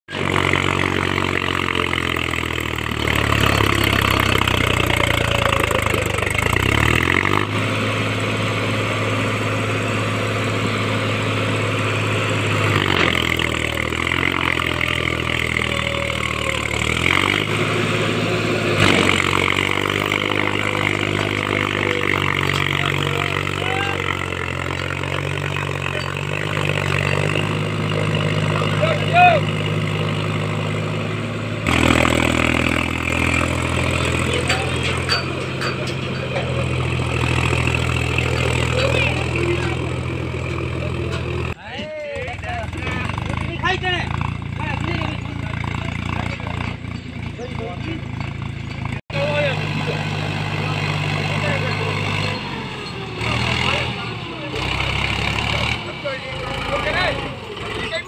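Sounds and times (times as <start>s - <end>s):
tractor diesel engine straining: 0.0s - 58.0s.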